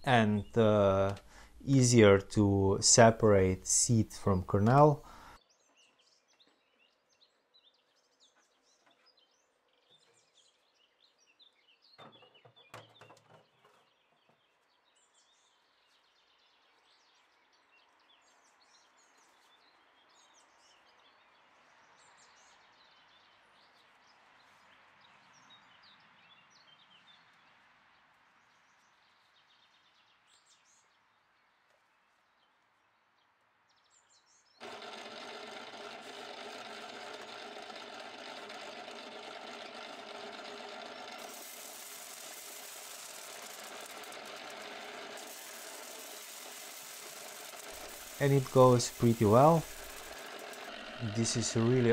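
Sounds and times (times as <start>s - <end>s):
birdsong chirping: 0.0s - 15.7s
electric corn sheller running: 34.6s - 51.9s.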